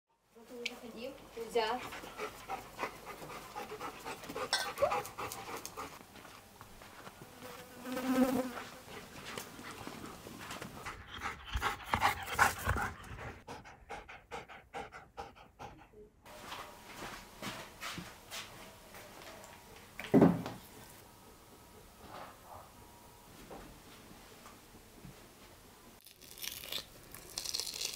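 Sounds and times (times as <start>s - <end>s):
dog panting: 1.4s - 6.0s, 8.8s - 16.1s.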